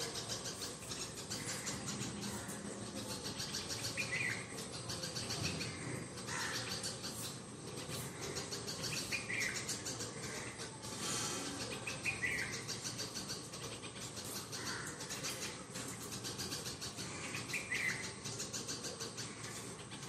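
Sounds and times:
birds chirping: 0.0 - 20.0
pulsing insect chorus: 0.0 - 20.0.

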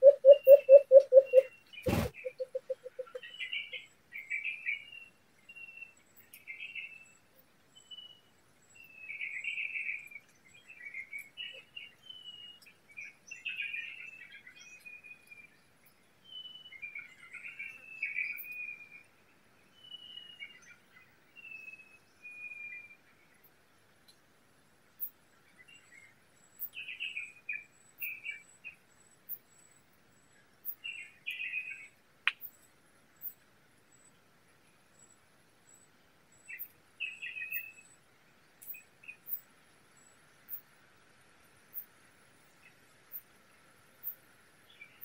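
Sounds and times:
birds chirping and trilling: 0.0 - 5.0.

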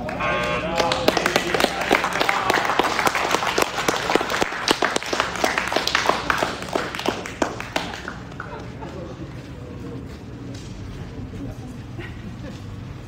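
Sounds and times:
people clapping: 0.0 - 9.5.

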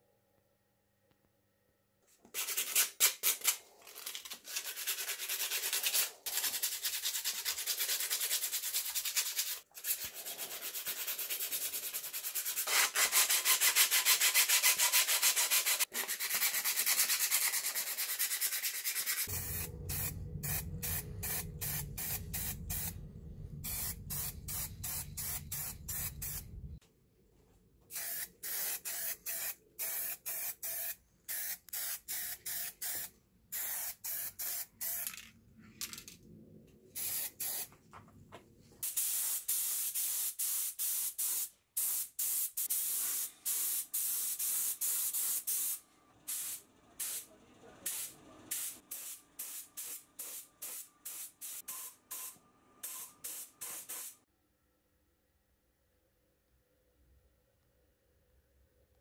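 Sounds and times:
sandpaper scraping on metal: 4.4 - 19.3.

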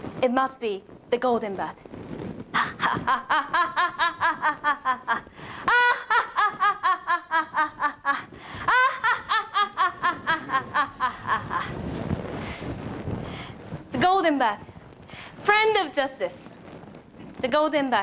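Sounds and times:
woman laughing: 2.6 - 11.8.

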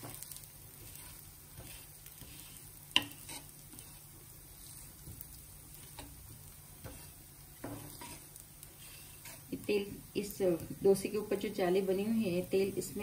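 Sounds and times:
wooden spatula rubbing: 0.0 - 9.8
pancake sizzling on a griddle: 0.0 - 13.0.

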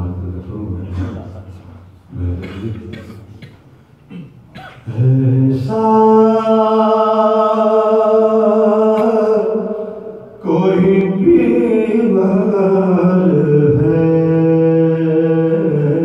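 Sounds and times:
man chanting melodically: 2.1 - 3.1, 4.8 - 16.0.

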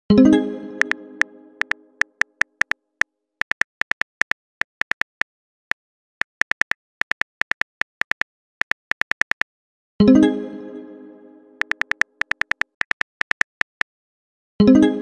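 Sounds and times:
phone keyboard typing ticks: 1.6 - 2.8, 3.4 - 5.3, 6.2 - 9.5, 11.6 - 13.9.

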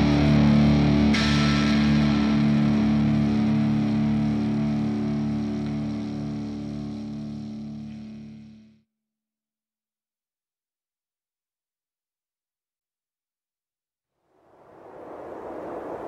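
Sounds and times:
distorted electric guitar chord: 0.0 - 8.8.

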